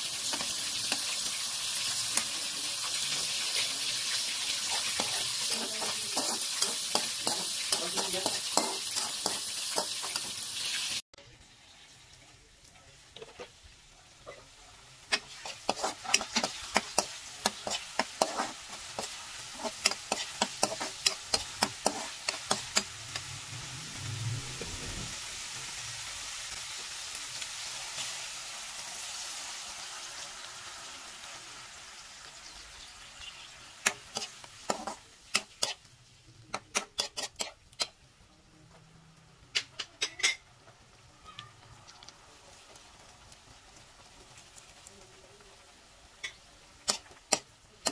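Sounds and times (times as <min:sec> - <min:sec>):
liquid sizzling in hot pan: 0:00.0 - 0:38.6, 0:39.2 - 0:47.9
spatula scraping a wok: 0:02.9 - 0:10.8, 0:15.1 - 0:25.2, 0:33.8 - 0:35.9, 0:36.5 - 0:38.0, 0:46.3 - 0:47.9.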